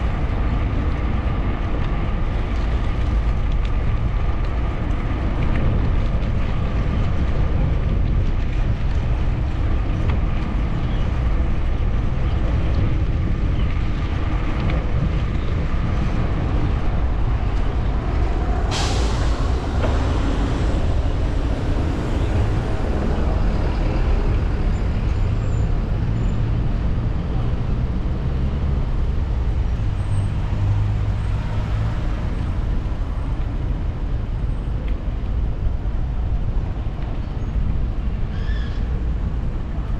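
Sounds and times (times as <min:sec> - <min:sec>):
passing road traffic: 0:00.0 - 0:39.9
wind rumble on microphone: 0:00.0 - 0:39.9
truck air brake hiss: 0:18.6 - 0:21.3.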